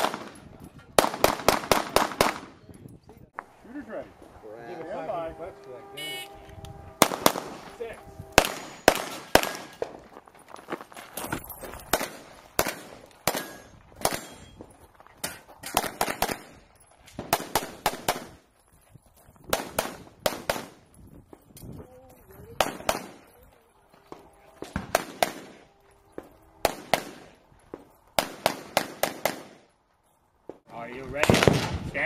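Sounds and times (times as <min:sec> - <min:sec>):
pistol shots: 0:00.0 - 0:00.4, 0:01.0 - 0:02.6, 0:07.0 - 0:07.7, 0:08.4 - 0:09.9, 0:11.9 - 0:14.5, 0:15.2 - 0:16.6, 0:17.2 - 0:18.4, 0:19.5 - 0:20.8, 0:22.6 - 0:23.2, 0:24.1 - 0:25.6, 0:26.2 - 0:27.4, 0:28.2 - 0:29.7, 0:31.2 - 0:31.8.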